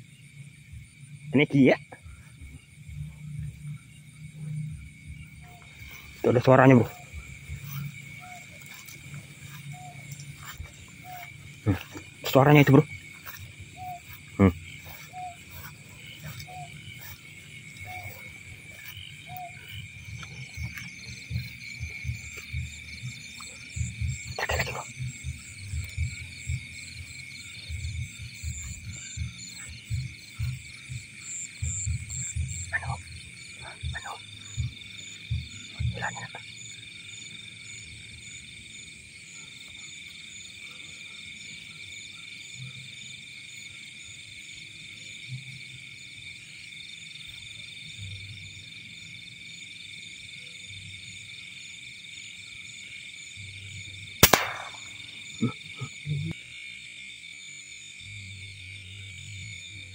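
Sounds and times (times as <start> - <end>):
frogs croaking: 0.0 - 59.9
insects trilling: 0.0 - 59.9
quick clicks: 54.2 - 54.9
air rifle shot: 54.2 - 55.0.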